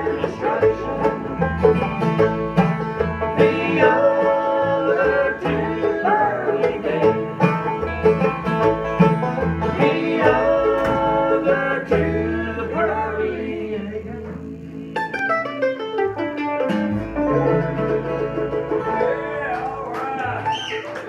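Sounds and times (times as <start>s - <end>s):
man singing: 0.0s - 1.4s, 3.4s - 7.2s, 9.7s - 14.4s
acoustic guitars: 0.0s - 21.0s
upright bass: 0.0s - 21.0s.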